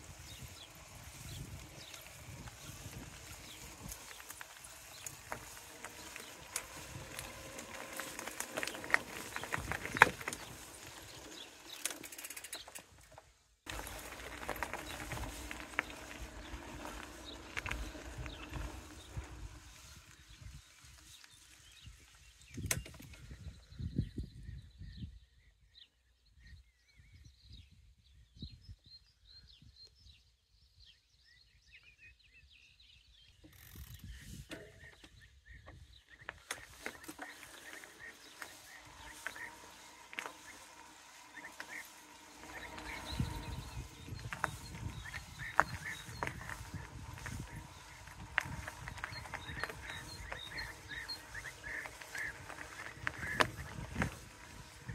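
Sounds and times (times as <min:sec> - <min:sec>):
small birds chirping: 0:00.0 - 0:54.9
footsteps on pavement: 0:01.6 - 0:11.2, 0:13.7 - 0:20.0, 0:36.3 - 0:54.9.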